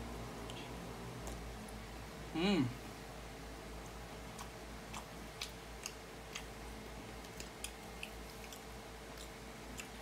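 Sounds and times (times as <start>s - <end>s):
chewing crisp fried chicken: 3.8s - 10.0s.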